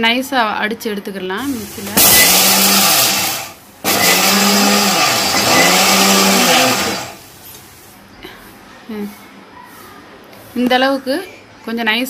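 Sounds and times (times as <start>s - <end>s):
mixer grinder grinding seeds: 1.4s - 7.3s.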